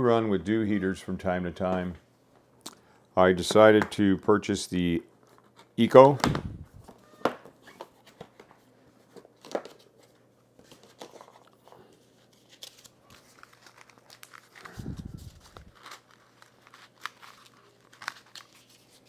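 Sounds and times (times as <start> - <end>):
cardboard packaging rustling: 7.6 - 19.0.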